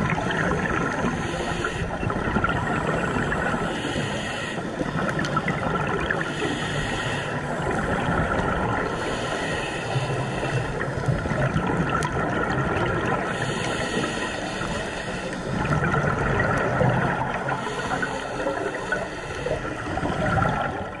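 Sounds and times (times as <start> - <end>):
gurgling exhaled bubbles: 0.0 - 21.0
regulator hissing inhale: 0.9 - 2.1, 3.4 - 7.6, 8.8 - 11.2, 13.2 - 15.8, 17.3 - 19.8.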